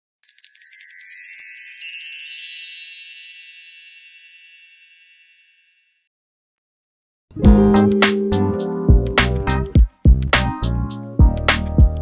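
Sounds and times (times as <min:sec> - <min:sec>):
shimmering chime sound effect: 0:00.2 - 0:06.0.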